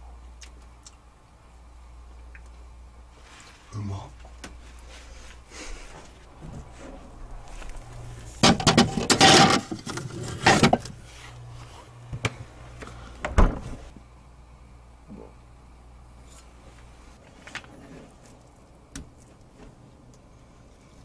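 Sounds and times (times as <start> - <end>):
stone mortar scraping and clattering: 8.4 - 10.9.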